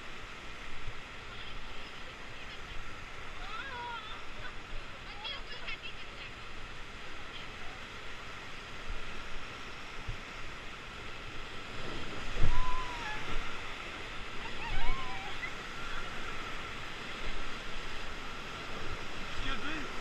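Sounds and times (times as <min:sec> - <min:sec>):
whitewater rapids rushing: 0:00.0 - 0:20.0.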